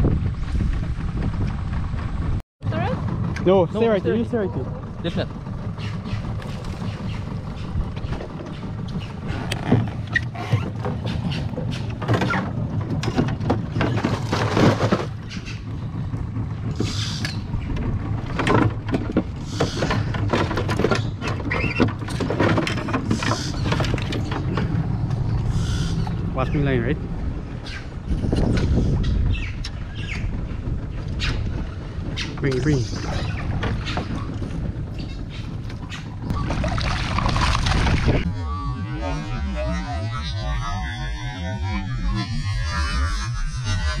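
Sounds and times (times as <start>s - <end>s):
steady low hum: 0.0s - 44.0s
fish splashing in water: 36.3s - 38.2s.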